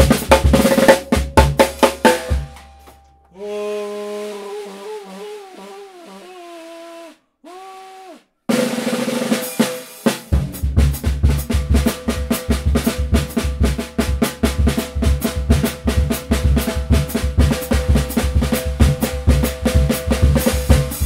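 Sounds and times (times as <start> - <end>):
drum kit playing: 0.0 - 3.0, 8.5 - 21.0
held musical note: 2.6 - 8.2.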